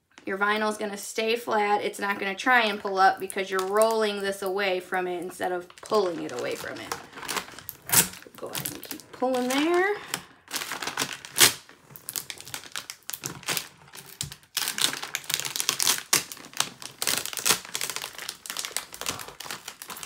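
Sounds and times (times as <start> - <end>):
tape peeling off crackling: 5.7 - 9.7, 10.5 - 20.0.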